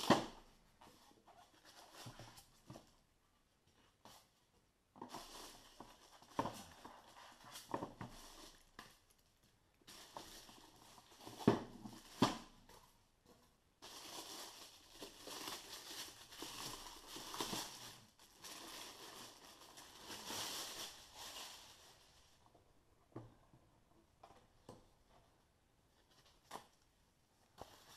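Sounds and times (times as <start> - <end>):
plastic bag crinkling: 13.8 - 22.4.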